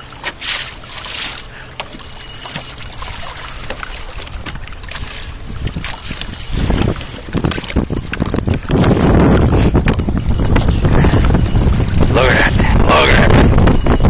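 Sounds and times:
water lapping against boat: 0:00.0 - 0:14.0
wind buffeting microphone: 0:02.8 - 0:14.0.

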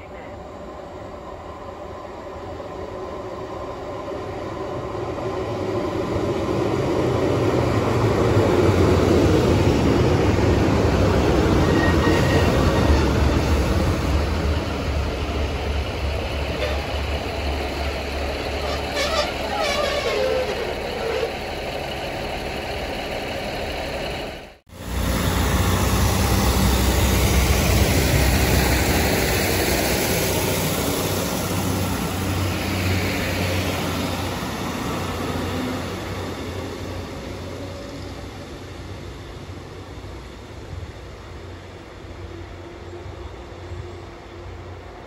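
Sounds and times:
train wheels rumbling: 0:01.2 - 0:45.0
diesel engine drone: 0:13.7 - 0:41.9
brakes squealing: 0:16.1 - 0:24.4.

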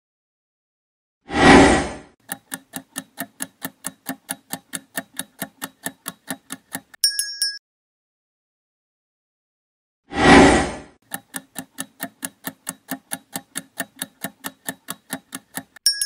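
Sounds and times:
clock ticking: 0:02.2 - 0:07.0, 0:11.0 - 0:16.0.

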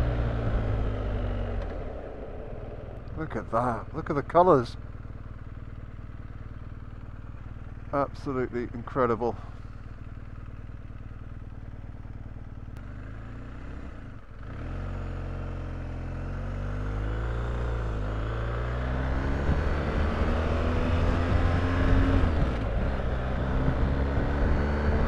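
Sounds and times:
motorcycle engine accelerating: 0:00.0 - 0:25.0.

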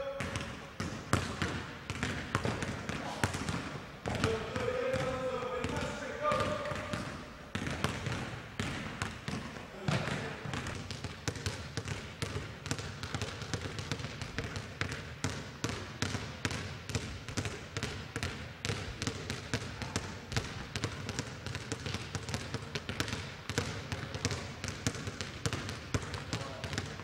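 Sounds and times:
basketballs bouncing on court: 0:00.0 - 0:27.0.

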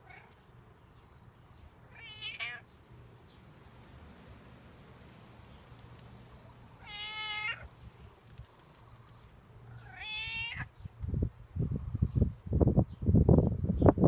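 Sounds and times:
cat meowing: 0:01.9 - 0:02.6, 0:06.8 - 0:07.7, 0:09.8 - 0:10.7.

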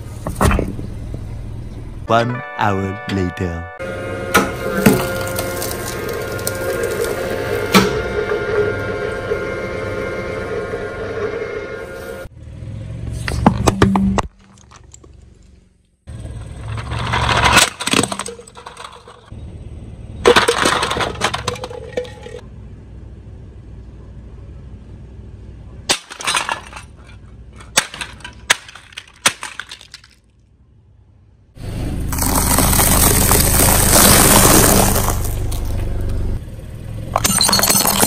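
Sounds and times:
plastic toy cracking and crunching: 0:32.1 - 0:35.7.

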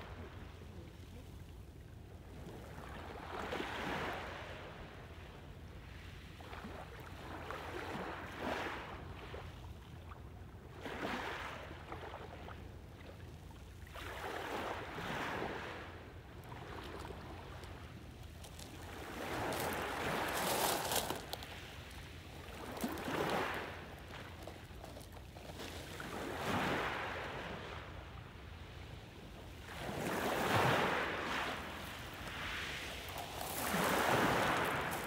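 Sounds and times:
small waves lapping: 0:10.0 - 0:35.0.

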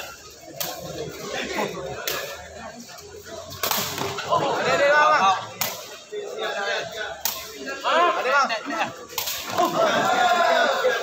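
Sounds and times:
people shouting: 0:06.3 - 0:11.0.

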